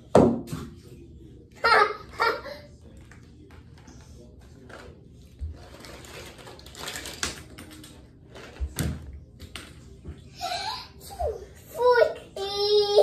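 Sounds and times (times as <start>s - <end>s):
toys rattling in plastic basket: 3.0s - 9.8s.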